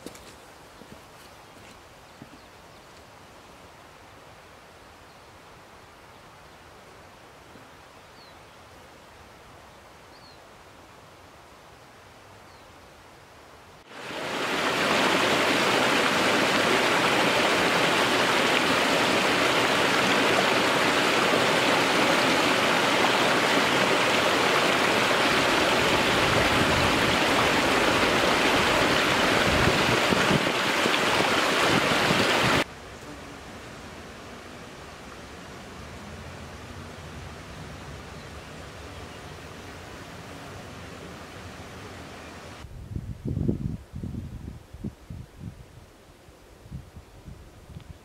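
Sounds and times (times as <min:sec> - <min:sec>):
river rushing over rocks: 0:13.9 - 0:32.7.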